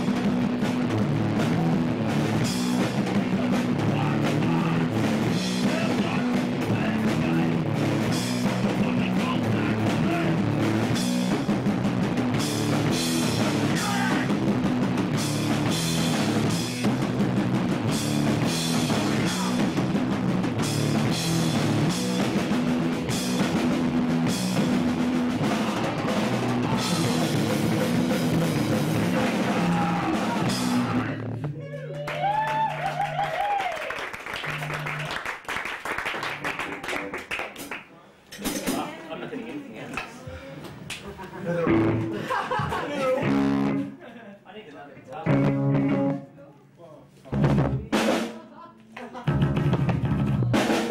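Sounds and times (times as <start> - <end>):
distorted electric guitar: 0.0 - 31.7, 41.7 - 42.2, 43.2 - 44.0, 45.2 - 46.3
drum kit with cymbal hits: 0.0 - 32.7, 38.4 - 39.0, 41.7 - 44.0, 45.2 - 46.2, 47.2 - 50.9
bass guitar: 0.0 - 33.6, 41.5 - 42.4, 43.1 - 44.0, 45.1 - 46.3, 47.2 - 48.1, 49.2 - 50.9.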